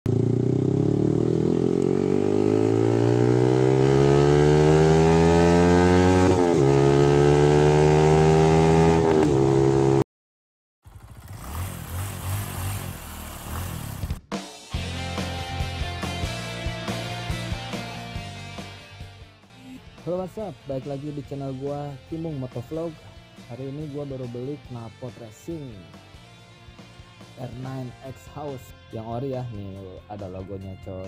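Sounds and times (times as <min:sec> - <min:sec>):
motorcycle engine accelerating: 0:00.1 - 0:10.0, 0:10.8 - 0:18.8.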